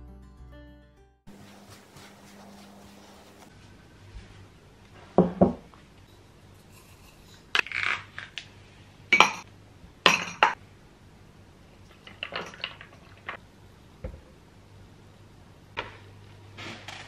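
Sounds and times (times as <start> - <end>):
glass jar clinking: 9.1 - 9.4, 10.1 - 10.6, 11.9 - 13.4
spoon clinking against mug: 9.2 - 9.4.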